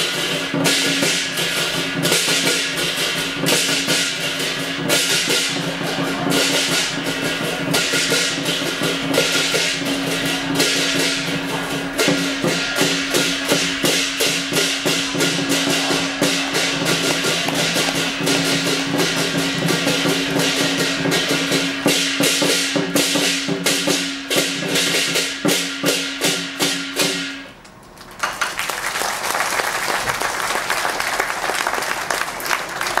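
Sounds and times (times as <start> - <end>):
drum beating fast rhythm: 0.0 - 27.4
cymbals clashing: 0.0 - 27.6
audience applause: 14.9 - 18.4, 28.0 - 33.0.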